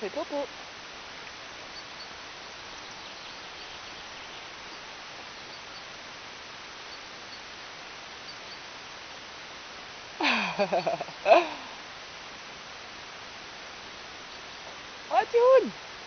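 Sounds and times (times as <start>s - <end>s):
outdoor background hiss: 0.0s - 16.0s
faint high chirps: 8.2s - 8.7s, 10.4s - 11.7s.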